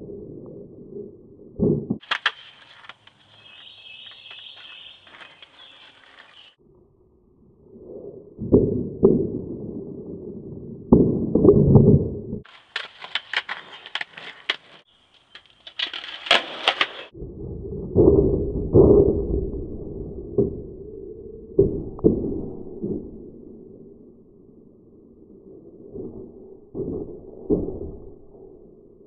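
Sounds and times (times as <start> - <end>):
skateboard popping and landing: 1.6 - 6.5, 12.4 - 17.1
skateboard wheels rolling on concrete: 2.0 - 6.6, 12.4 - 17.2.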